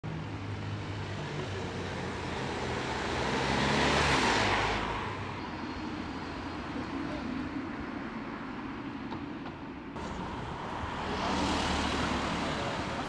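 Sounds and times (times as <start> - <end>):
car driving past: 10.0 - 13.0.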